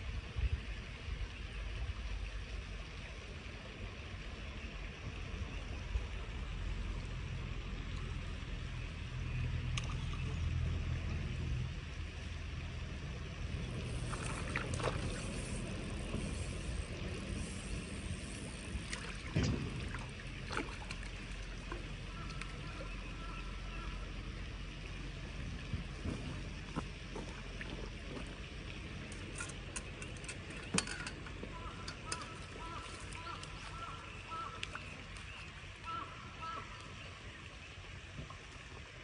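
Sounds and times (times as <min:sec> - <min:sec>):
wind rumbling on microphone: 0:00.0 - 0:23.3, 0:24.2 - 0:33.8
fish splashing: 0:13.8 - 0:16.1.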